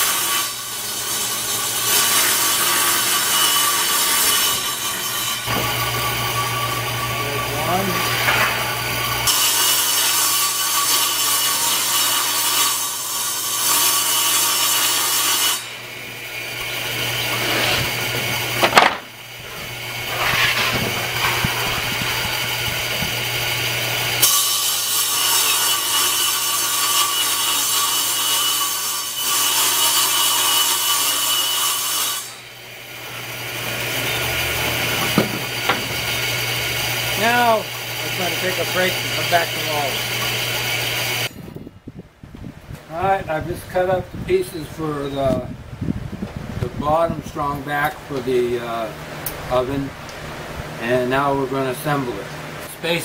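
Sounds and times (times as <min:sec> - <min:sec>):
table saw cutting plywood: 0:00.0 - 0:41.4.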